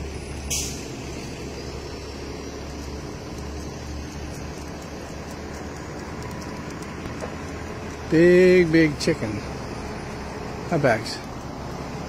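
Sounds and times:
low outdoor rumble: 0:00.0 - 0:12.0
brief hiss: 0:00.5 - 0:01.2.

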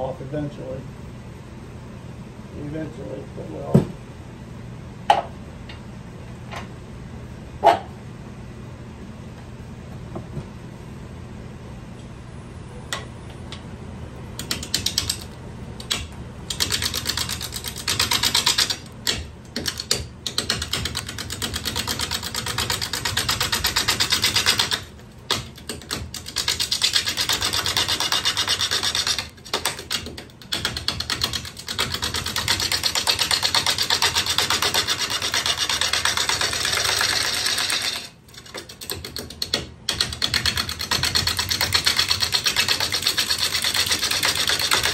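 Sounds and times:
rapid ticking of gouge: 0:14.4 - 0:44.9
gouge scraping wood on lathe: 0:26.6 - 0:29.3, 0:32.6 - 0:38.1.

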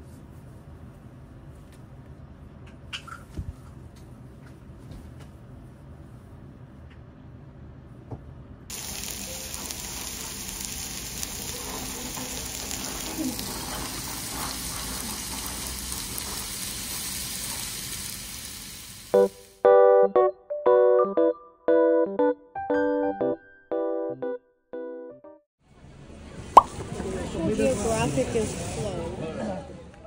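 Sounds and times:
meat sizzling on grill plate: 0:08.7 - 0:19.6
piano music: 0:08.9 - 0:10.3, 0:19.2 - 0:25.4.

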